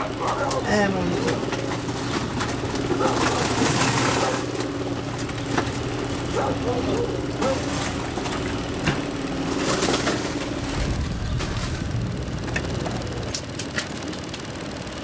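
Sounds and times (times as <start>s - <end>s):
low background hum: 0.0s - 15.0s
charcoal briquettes clicking together: 9.6s - 15.0s.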